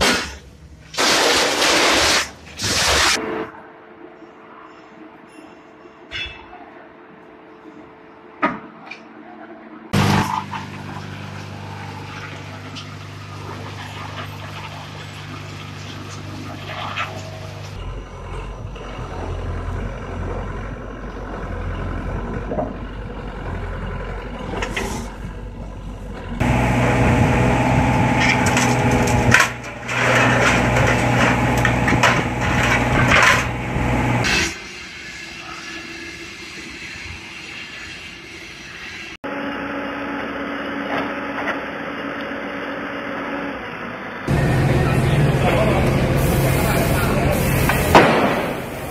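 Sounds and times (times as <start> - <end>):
excavator diesel engine: 10.0 - 34.3, 39.3 - 48.9
metal crunching and scraping: 26.2 - 34.5.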